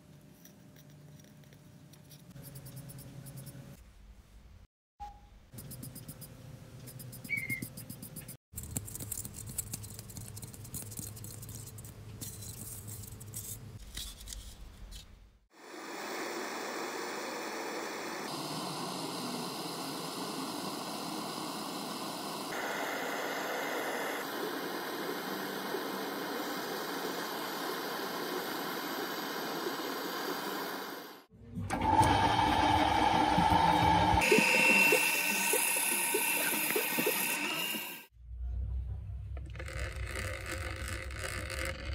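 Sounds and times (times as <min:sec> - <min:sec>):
gas torch hissing: 0:15.6 - 0:31.3.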